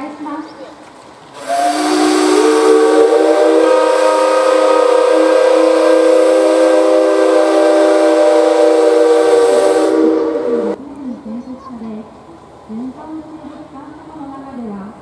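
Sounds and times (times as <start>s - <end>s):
steam locomotive whistle: 1.4s - 10.8s.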